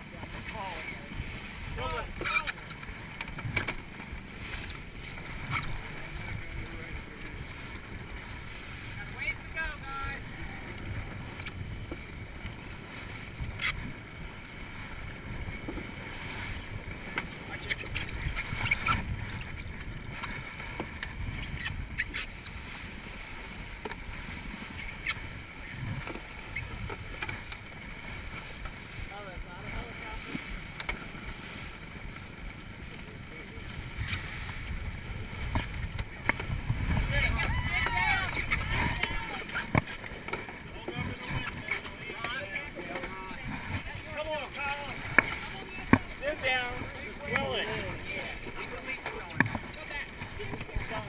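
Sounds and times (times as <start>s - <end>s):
wind buffeting the microphone: 0.0s - 31.8s, 33.3s - 40.0s
water splashing past a hull: 0.0s - 51.0s
knock on wooden canoe: 45.0s - 46.1s.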